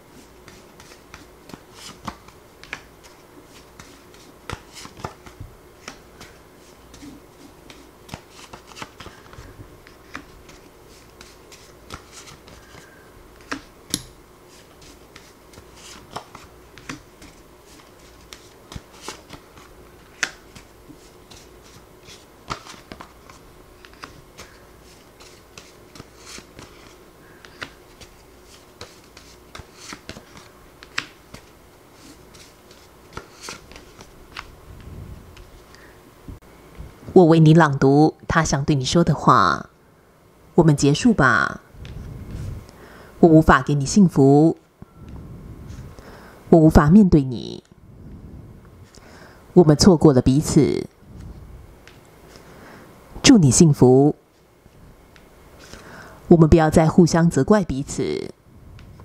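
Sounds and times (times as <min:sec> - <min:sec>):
faint steady hum: 0:00.0 - 0:59.0
paper cards flicking and tapping: 0:00.2 - 0:34.5.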